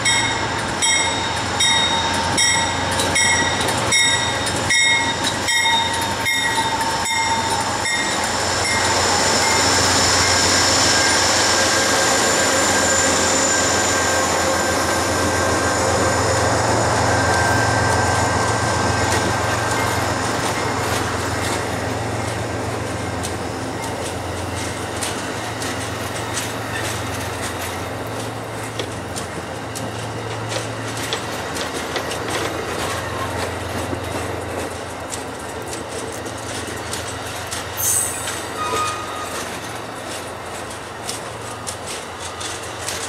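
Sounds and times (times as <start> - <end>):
train bell ringing: 0.0 - 24.9, 36.8 - 39.9
locomotive engine: 0.0 - 43.0
train wheels rumbling: 0.0 - 43.0
faint wheel squeal: 37.8 - 39.5.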